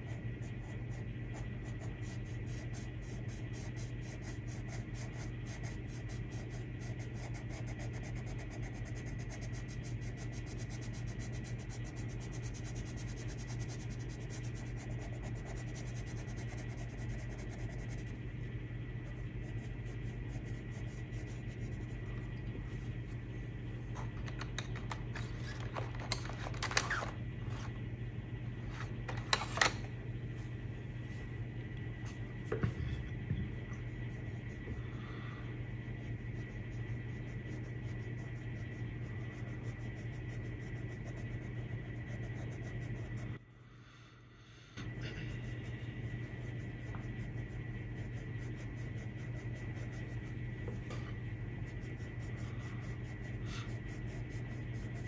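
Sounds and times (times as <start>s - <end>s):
pencil scratching on paper: 0.0s - 18.3s, 19.0s - 22.3s, 33.7s - 43.4s, 45.3s - 55.0s
steady low hum: 0.0s - 55.0s
pencils clattering: 24.2s - 27.1s.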